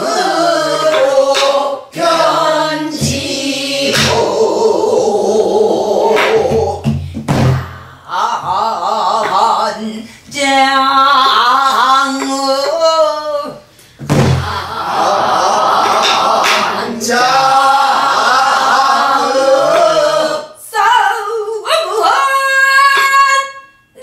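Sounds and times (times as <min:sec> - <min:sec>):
barrel drum strokes: 0:02.9 - 0:04.4, 0:06.2 - 0:08.0, 0:14.0 - 0:14.6.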